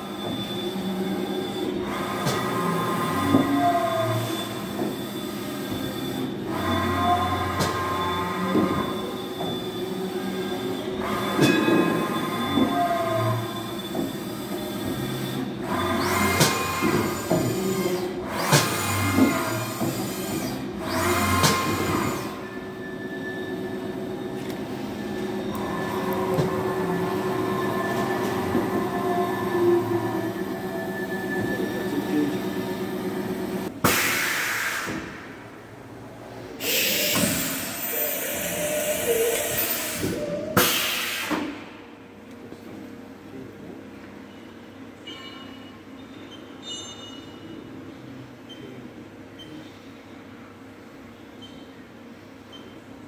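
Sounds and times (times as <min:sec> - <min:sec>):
machine axis drive whining: 0:00.0 - 0:35.7, 0:36.4 - 0:41.7
steady machine hum: 0:00.0 - 0:40.6.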